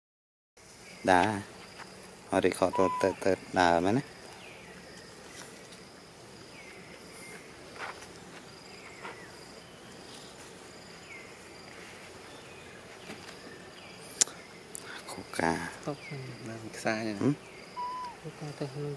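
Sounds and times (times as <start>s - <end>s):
insects droning: 0.6s - 18.9s
short falling calls: 2.6s - 3.4s, 17.7s - 18.4s.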